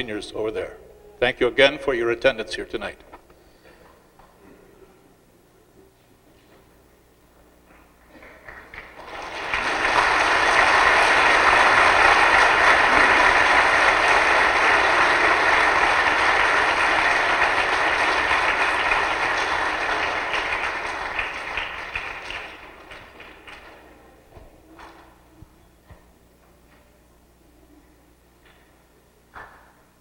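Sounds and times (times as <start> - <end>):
crowd applauding: 8.0 - 24.0.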